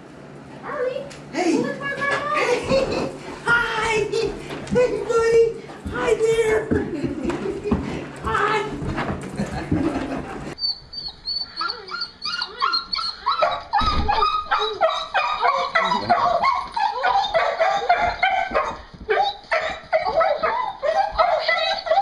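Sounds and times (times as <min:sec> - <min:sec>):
dog whining and yelping: 0:10.6 - 0:22.0.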